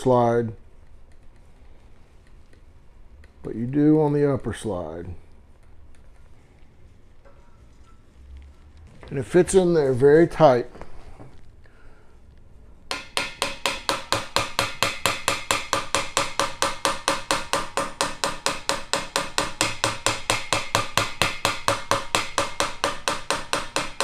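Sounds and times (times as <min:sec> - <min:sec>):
mallet tapping metal rod: 0:12.9 - 0:24.0.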